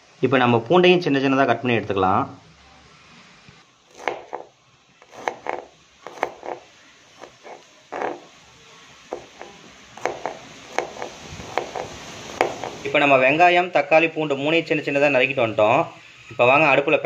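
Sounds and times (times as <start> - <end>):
knife cutting on cutting board: 3.9 - 8.3, 9.1 - 12.8.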